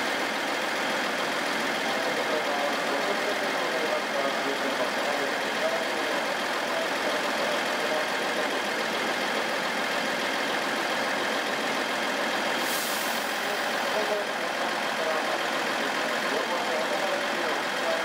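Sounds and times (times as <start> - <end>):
train engine idling: 0.0 - 18.0
short high hiss: 12.6 - 13.6.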